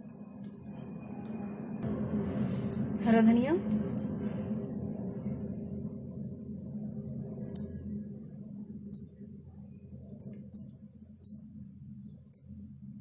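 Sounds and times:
steady low hum: 0.0s - 13.0s
light sharp clinks: 10.2s - 11.4s.

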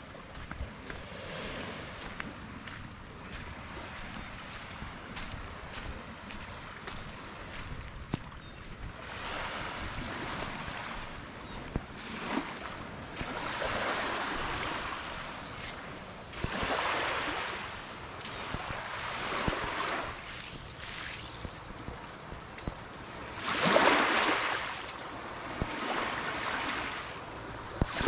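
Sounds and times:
water splashing around kayak: 9.1s - 28.0s
wind on microphone: 27.4s - 28.0s.

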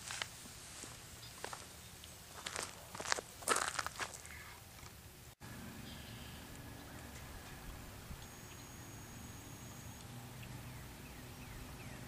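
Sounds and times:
faint bird chirps: 5.8s - 6.9s, 8.2s - 12.0s.

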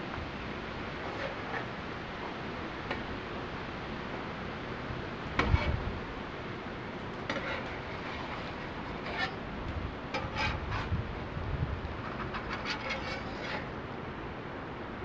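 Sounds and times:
metal spatula scraping griddle: 1.0s - 1.8s, 5.4s - 5.9s, 7.2s - 9.5s, 10.1s - 11.0s, 12.0s - 13.8s
eggs sizzling on a griddle: 7.2s - 8.9s.

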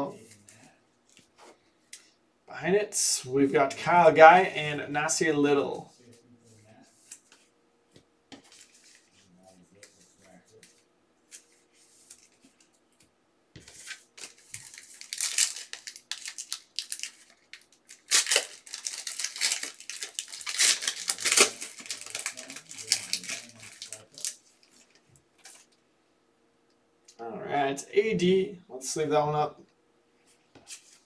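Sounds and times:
packaging tearing and crinkling: 13.8s - 25.6s.

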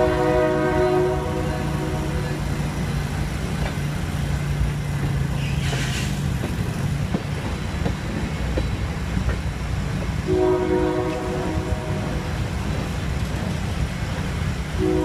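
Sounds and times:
chord of steady tones: 0.0s - 2.8s, 10.3s - 12.8s, 14.8s - 15.0s
train wheels rumbling on rails: 0.0s - 15.0s
brief hiss: 5.4s - 6.3s.

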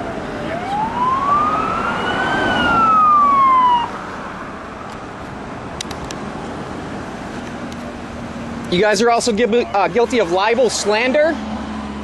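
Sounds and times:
police siren wailing: 0.0s - 4.5s.

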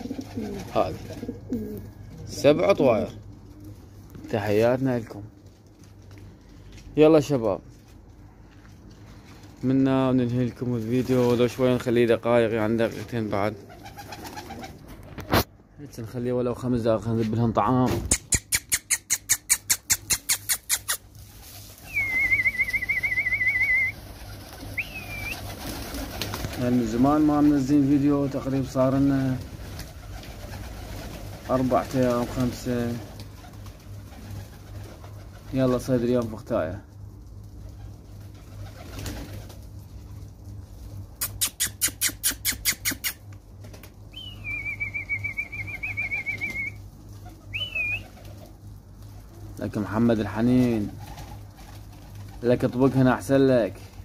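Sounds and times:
pigeon wing flaps: 0.0s - 1.8s, 12.8s - 15.5s, 19.5s - 36.4s, 37.2s - 40.9s, 42.7s - 44.0s, 44.8s - 49.5s, 50.5s - 53.1s
person whistling: 21.9s - 23.9s
rising-and-falling whistle: 21.9s - 24.0s, 44.2s - 46.8s
warbling whistle: 21.9s - 24.0s, 24.8s - 25.5s, 44.2s - 46.8s, 47.5s - 48.0s.

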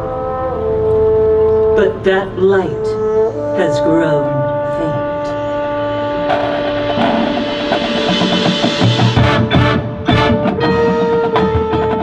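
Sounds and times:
marching band held chords: 0.0s - 12.0s
rhythmic drum hits: 6.2s - 12.0s.

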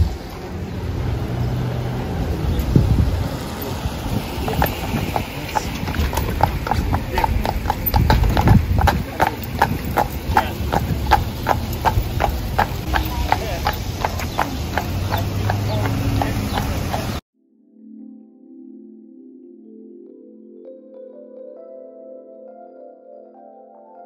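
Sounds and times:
horse hooves clip-clopping on asphalt: 3.4s - 17.2s.

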